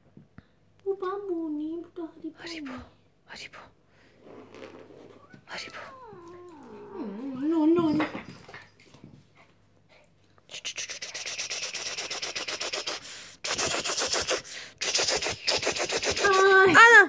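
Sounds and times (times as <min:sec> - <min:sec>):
puppies scuffling against microphone: 0:07.3 - 0:09.6.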